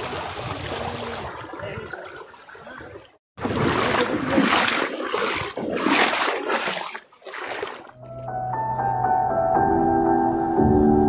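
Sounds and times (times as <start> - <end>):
stream water splashing over rock: 0.0 - 8.0.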